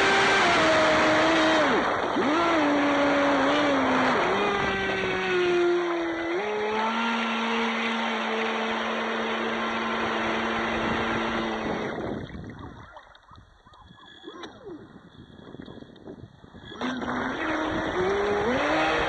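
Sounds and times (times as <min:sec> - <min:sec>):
electric motor whining: 0:00.0 - 0:12.4, 0:13.8 - 0:19.0
water lapping against hull: 0:10.4 - 0:19.0.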